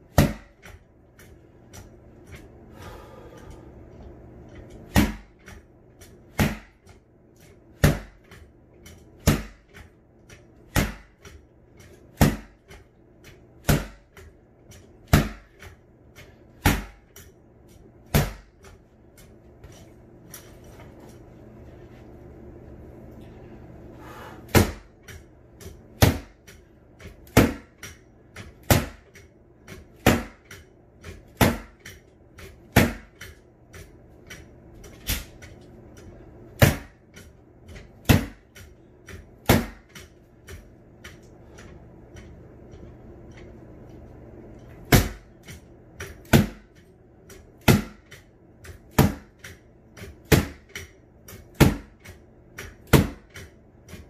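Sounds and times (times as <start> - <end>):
rattan sword whacking punching bag: 0.0 - 2.5, 4.6 - 7.0, 7.7 - 18.8, 24.4 - 35.6, 36.5 - 41.7, 44.8 - 54.0.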